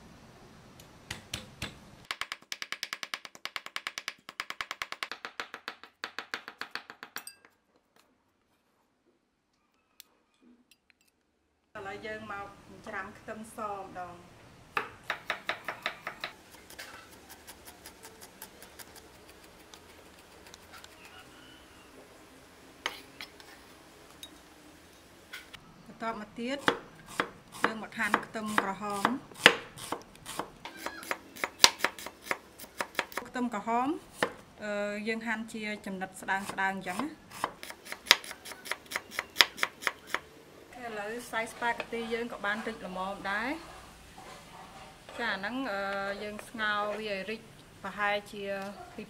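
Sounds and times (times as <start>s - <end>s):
knife chopping on wooden board: 14.8s - 17.8s.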